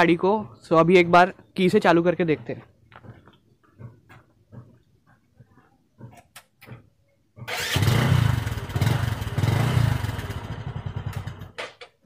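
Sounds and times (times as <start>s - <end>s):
motorcycle engine starting and running: 6.0s - 12.0s.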